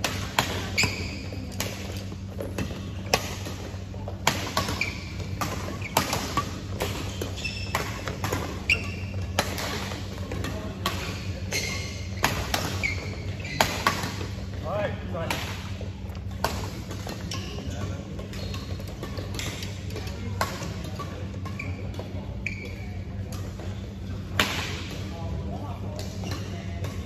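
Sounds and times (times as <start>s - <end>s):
rackets hitting shuttlecock: 0.0s - 14.5s, 22.8s - 25.1s
sneaker squeaks on court floor: 0.4s - 14.5s, 16.3s - 24.0s, 26.1s - 27.0s.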